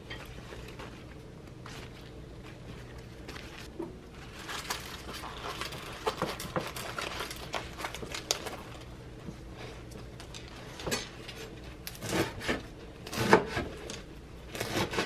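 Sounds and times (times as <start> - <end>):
leaves rustling and crackling: 0.3 - 8.9.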